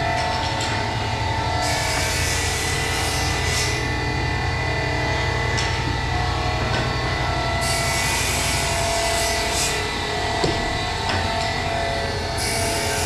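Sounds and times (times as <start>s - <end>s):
machinery hum and whine: 0.0s - 13.0s
knock: 10.4s - 10.7s.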